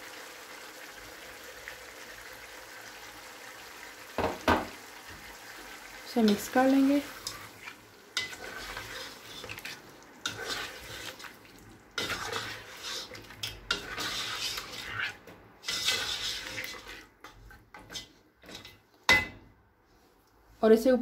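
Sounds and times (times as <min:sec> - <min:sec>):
utensil knocking on pan: 0:04.2 - 0:04.7
spoon scraping in gravy: 0:07.2 - 0:18.8.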